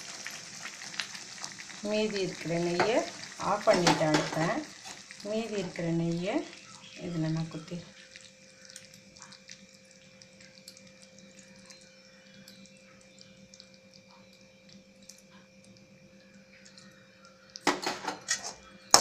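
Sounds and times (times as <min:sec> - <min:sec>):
thick pudding bubbling: 0:00.0 - 0:17.2
steady hum: 0:01.6 - 0:19.0
metal ladle scraping pan: 0:17.7 - 0:19.0.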